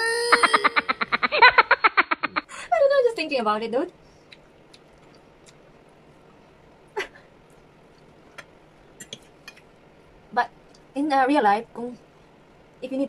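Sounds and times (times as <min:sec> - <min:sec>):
fork clicking against plate: 0:08.4 - 0:09.7.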